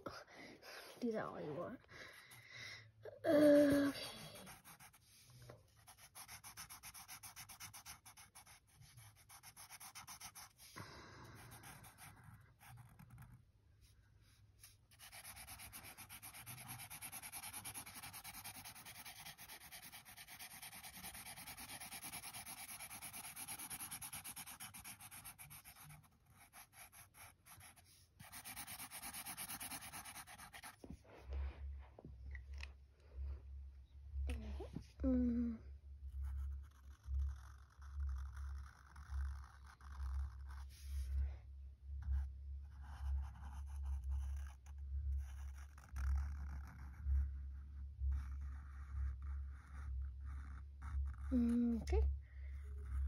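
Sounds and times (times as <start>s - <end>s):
marker scribbling on paper: 3.8s - 10.8s, 11.4s - 13.3s, 14.6s - 31.0s, 36.2s - 41.2s, 42.1s - 51.6s.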